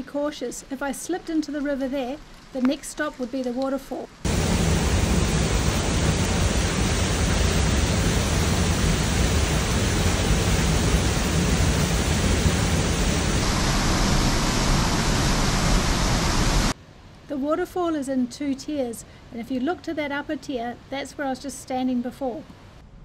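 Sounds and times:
waterfall rushing: 0:04.3 - 0:16.8.

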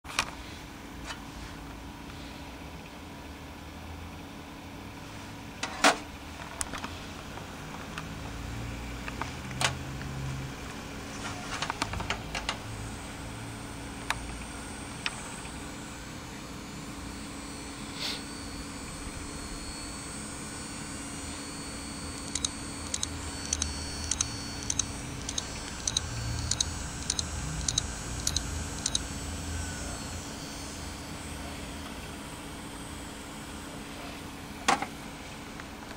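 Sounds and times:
hard drive humming: 0:12.2 - 0:33.8
faint high whine: 0:12.7 - 0:34.1
hard drive clicking: 0:22.1 - 0:29.1
regular ticking: 0:22.2 - 0:29.0.

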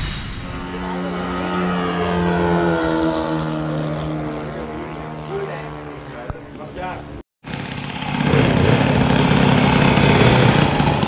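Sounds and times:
model airplane engine droning: 0:00.3 - 0:11.0.

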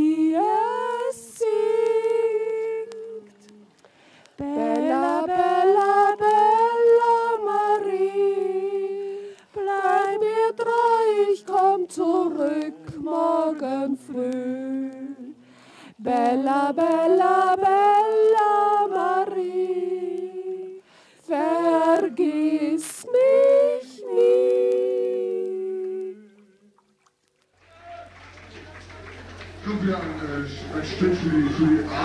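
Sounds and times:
person singing held phrases: 0:04.4 - 0:05.2.

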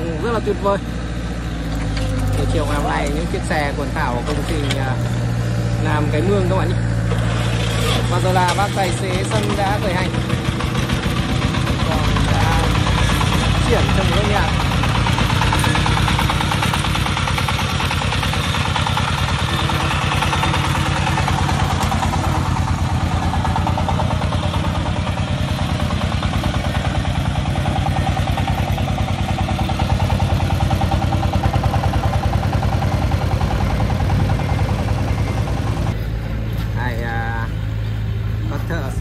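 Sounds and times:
diesel engine chugging: 0:00.0 - 0:39.0.

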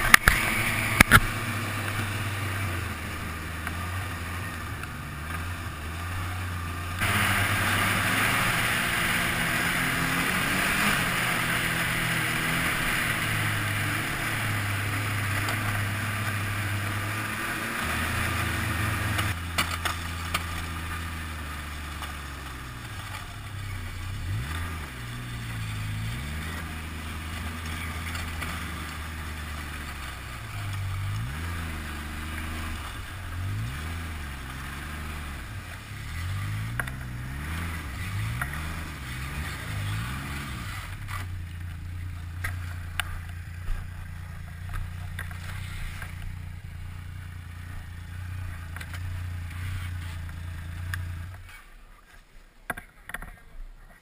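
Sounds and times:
sharp clicks: 0:00.0 - 0:02.0
snowmobile engine running: 0:00.0 - 0:51.8
snowmobile track noise: 0:00.0 - 0:54.0.

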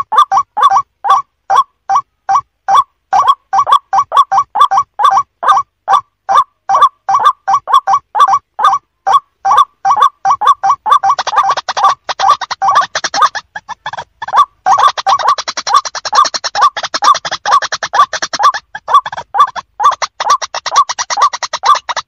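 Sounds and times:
bird harsh calls: 0:00.0 - 0:22.0
high rattling bird chatter: 0:06.3 - 0:22.0.

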